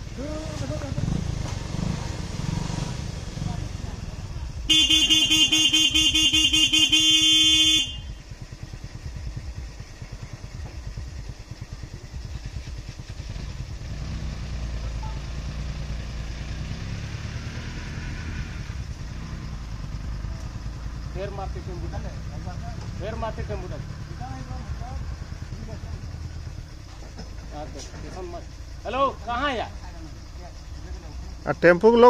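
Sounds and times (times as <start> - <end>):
vehicle engine idling: 0.0 - 32.0
vehicle horn with warbling tone: 4.7 - 8.2.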